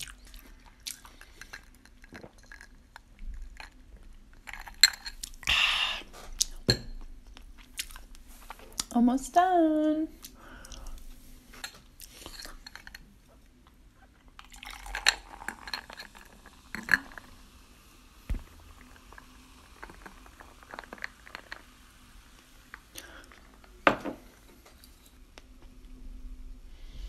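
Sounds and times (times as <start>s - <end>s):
chewing: 0.0s - 3.5s
fizzy drink poured into glass: 14.4s - 25.2s.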